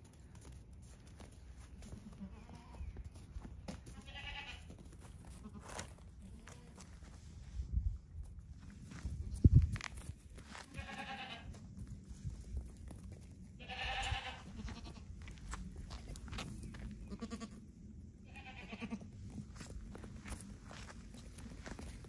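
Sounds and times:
hooves tapping on concrete: 0.0 - 7.2, 8.1 - 22.0
goat kids bleating: 1.7 - 6.9, 10.5 - 11.6, 13.6 - 15.4, 16.9 - 17.6, 18.2 - 19.2.

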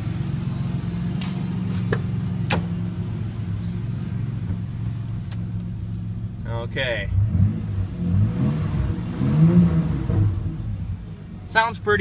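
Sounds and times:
truck engine idling: 0.0 - 7.0.

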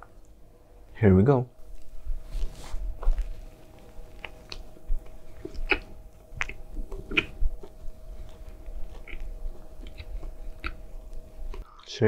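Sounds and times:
chewing crunches: 3.1 - 11.6
wet mouth clicks: 4.2 - 11.6.

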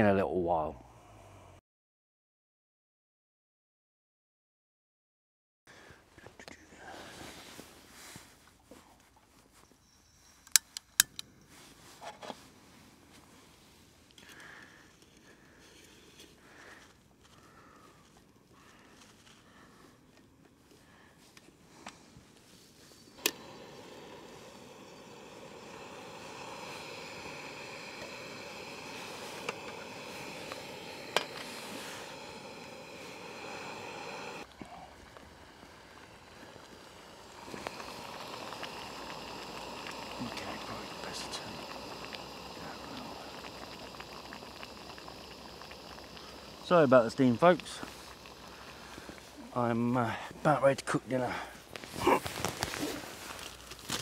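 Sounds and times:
gas stove burner hissing: 23.0 - 54.0
handling rustle: 51.6 - 54.0.

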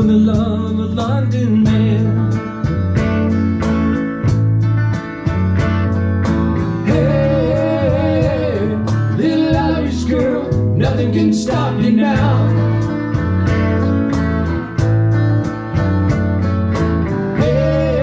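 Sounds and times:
electric guitar: 0.0 - 18.0
live band playing: 0.0 - 18.0
low bass notes: 0.0 - 18.0
steady ticking beat: 2.7 - 18.0.

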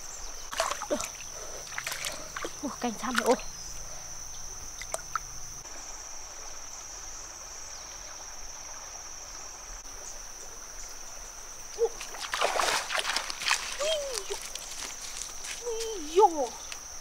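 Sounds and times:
insects shrilling: 11.6 - 17.0.

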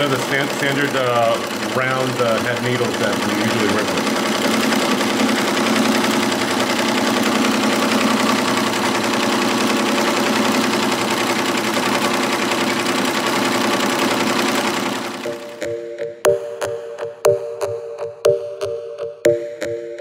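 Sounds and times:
embroidery machine needle clatter: 0.0 - 15.6
constant machine hum: 0.0 - 15.8.

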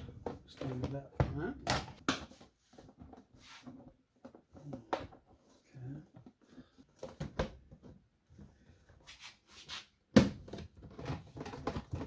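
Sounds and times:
plastic panels knocking and clacking: 10.1 - 12.0.

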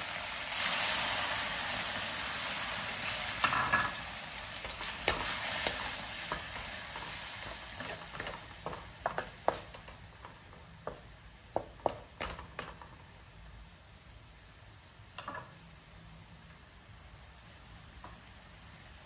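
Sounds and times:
meat sizzling: 0.0 - 13.5.

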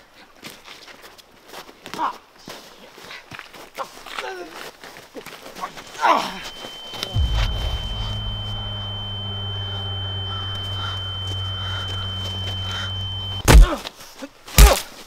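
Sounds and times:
high-pitched ringing tone: 6.0 - 13.5
low steady hum: 6.2 - 13.5
sharp hit: 6.3 - 13.6
loud thump: 6.5 - 13.7.

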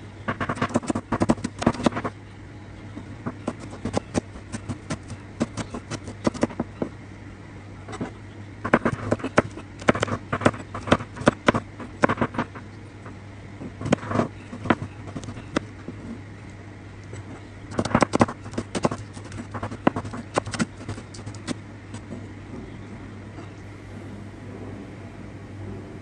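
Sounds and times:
knife chopping on plastic board: 0.3 - 2.1, 3.4 - 6.9, 8.7 - 12.5, 17.7 - 22.1.

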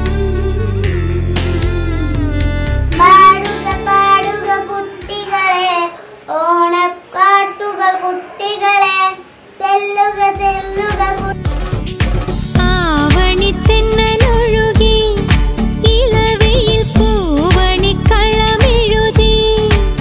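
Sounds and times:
bass-heavy music track: 0.0 - 4.4, 10.8 - 20.0
instrumental backing music: 0.0 - 6.3, 10.2 - 20.0
girl singing: 2.9 - 11.4, 12.6 - 20.0.

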